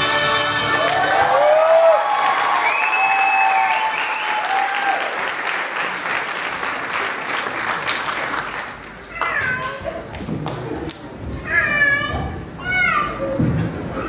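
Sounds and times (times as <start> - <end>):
audience applauding: 0.7 - 9.5.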